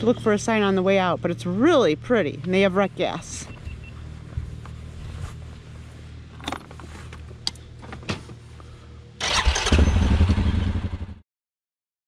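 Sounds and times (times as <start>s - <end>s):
low steady hum: 0.0s - 10.3s
atv engine starting and running: 9.2s - 11.2s.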